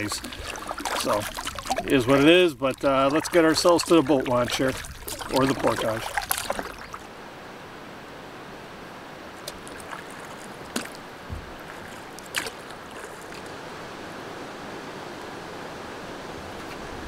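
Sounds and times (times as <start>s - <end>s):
paddle clicks and splashes: 0.0s - 7.1s, 9.4s - 13.6s
lapping water: 0.0s - 7.2s, 9.3s - 13.7s
light headwind: 0.0s - 17.0s.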